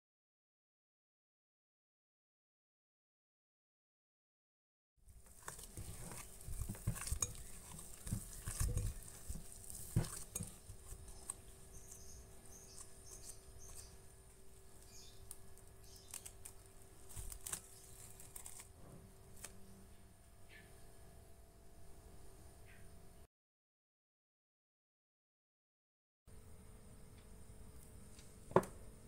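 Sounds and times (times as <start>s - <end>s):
dough kneaded in glass bowl: 5.1s - 18.8s
cling film rustling: 15.3s - 18.7s.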